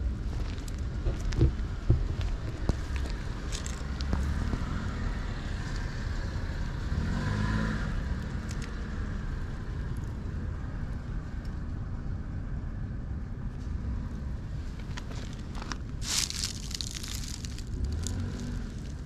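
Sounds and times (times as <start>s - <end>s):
low traffic rumble: 0.0s - 19.0s
car passing: 2.7s - 10.0s, 13.8s - 19.0s.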